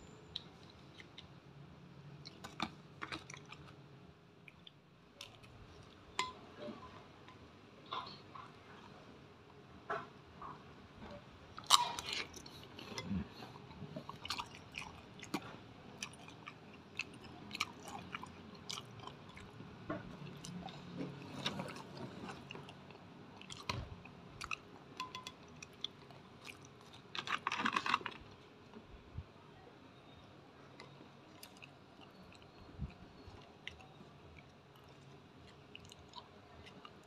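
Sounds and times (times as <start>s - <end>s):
chewing crispy food: 0.2s - 6.2s, 11.6s - 28.8s, 30.7s - 37.0s.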